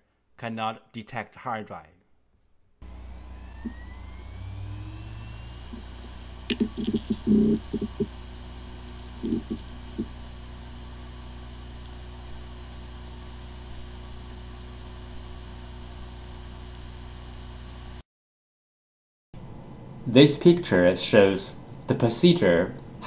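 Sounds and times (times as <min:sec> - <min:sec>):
hard drive hum: 0:02.8 - 0:18.0
hard drive whine: 0:02.8 - 0:18.0
hard drive clicks and knocks: 0:05.8 - 0:08.2, 0:08.8 - 0:10.2.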